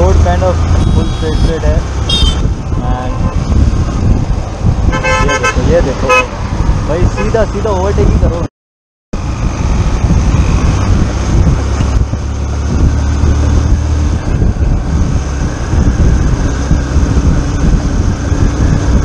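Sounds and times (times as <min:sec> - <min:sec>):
wind buffeting microphone: 0:00.0 - 0:08.5, 0:09.2 - 0:19.0.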